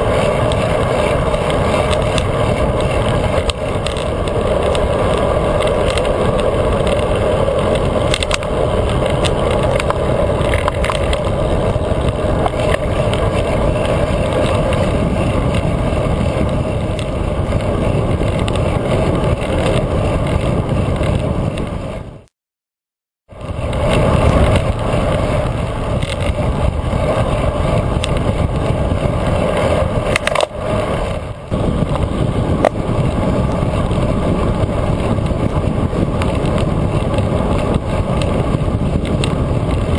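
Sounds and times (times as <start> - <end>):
rushing wind: 0.0 - 22.3, 23.3 - 39.9
tyre noise on road: 0.0 - 22.3, 23.3 - 39.9
small clicks: 0.5 - 11.4, 25.9 - 26.4, 29.6 - 31.1, 39.0 - 39.9.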